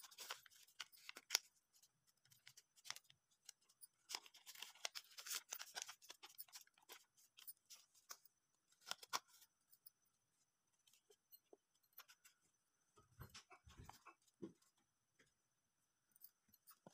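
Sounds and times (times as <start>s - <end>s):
paper crinkling and crackling: 0.0s - 9.5s.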